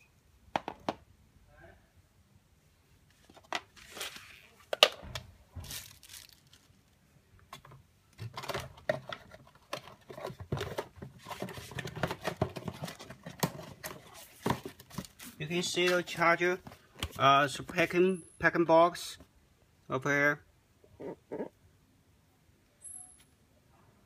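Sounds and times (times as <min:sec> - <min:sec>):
crinkling and rustling: 0:03.0 - 0:17.9.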